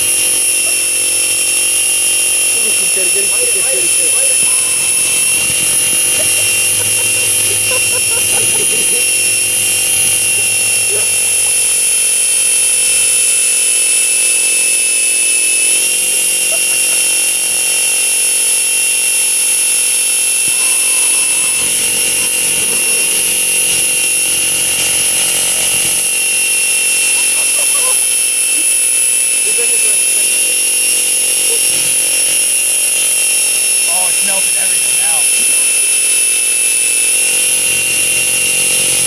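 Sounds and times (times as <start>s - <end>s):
electric motor whining: 0.0s - 39.0s.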